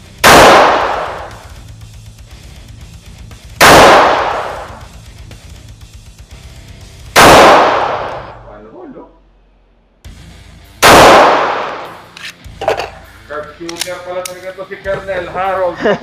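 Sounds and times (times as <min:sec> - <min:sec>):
pistol shots ringing out: 0:00.2 - 0:01.4, 0:03.6 - 0:04.8, 0:07.2 - 0:08.3, 0:10.8 - 0:12.0.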